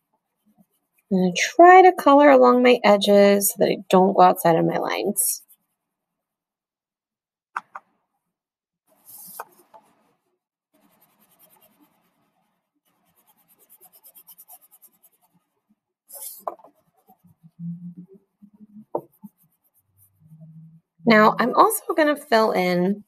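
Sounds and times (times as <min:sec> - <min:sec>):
crayon scratching on paper: 0:00.0 - 0:01.9, 0:04.5 - 0:05.9, 0:08.9 - 0:10.1, 0:10.8 - 0:22.6.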